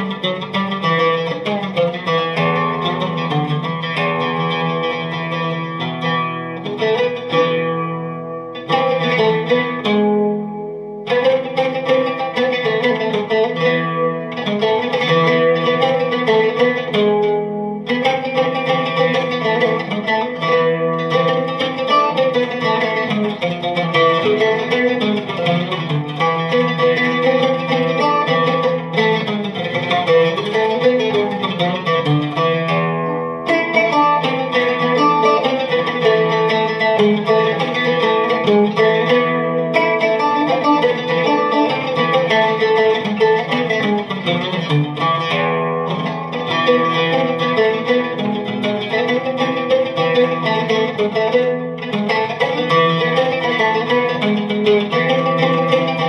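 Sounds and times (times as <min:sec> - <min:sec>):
amplified oud melody: 0:00.0 - 0:56.0.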